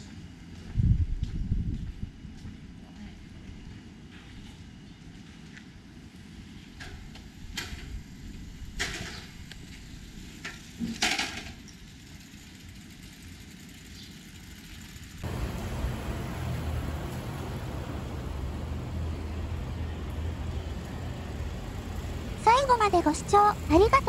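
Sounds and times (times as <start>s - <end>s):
traffic rumble: 14.8s - 24.0s
deeper rumble: 15.2s - 24.0s.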